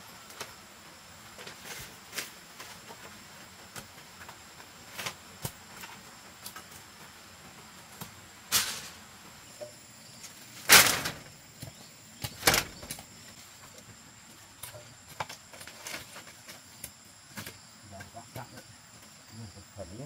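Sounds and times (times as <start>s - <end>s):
high insect drone: 0.0s - 20.0s
bamboo slats clattering: 8.4s - 9.0s, 10.3s - 13.0s.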